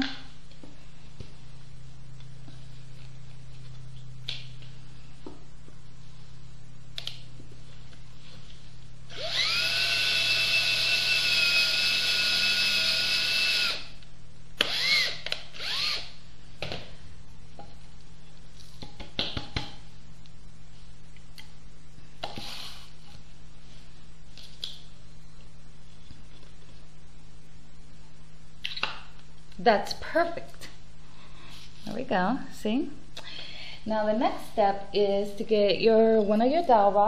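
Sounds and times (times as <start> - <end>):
electric drill boring into wood: 9.1 - 13.9, 14.6 - 16.1.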